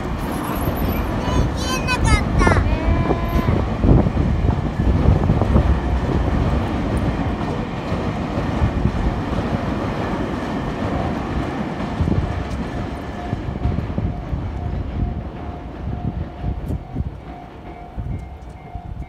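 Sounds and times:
train wheels rumbling on rails: 0:00.0 - 0:19.0
crossing bell ringing: 0:13.0 - 0:19.0.

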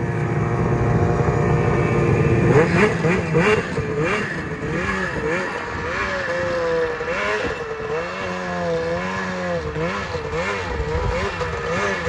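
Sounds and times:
snowmobile engine revving: 0:00.0 - 0:12.0.

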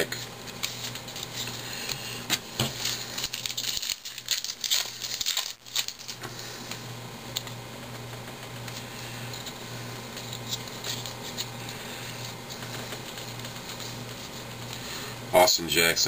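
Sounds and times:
foil wrapper crackling: 0:00.2 - 0:06.3, 0:08.5 - 0:15.0.

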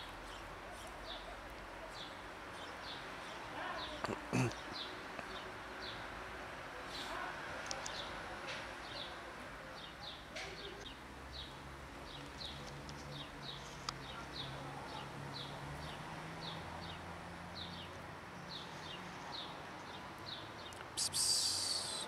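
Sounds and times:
small bird chirping: 0:20.3 - 0:22.0.

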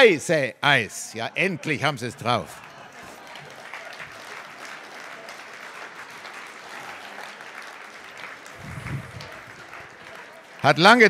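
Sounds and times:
audience applauding: 0:01.5 - 0:11.0
short low voice-like sound: 0:08.6 - 0:09.3.

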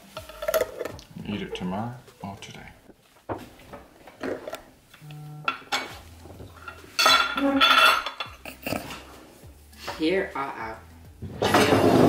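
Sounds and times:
glass jars clattering on countertop: 0:05.5 - 0:09.0.

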